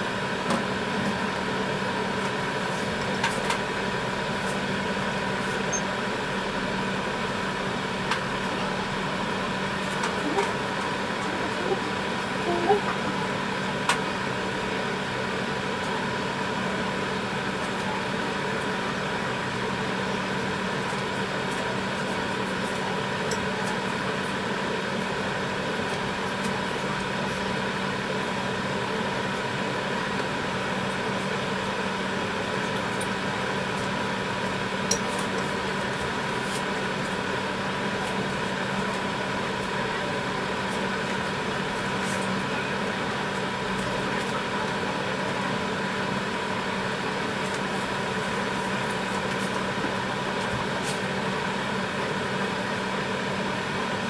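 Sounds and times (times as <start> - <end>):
broth boiling in a pan: 0.0 - 54.0
kitchen appliance humming: 0.0 - 54.0.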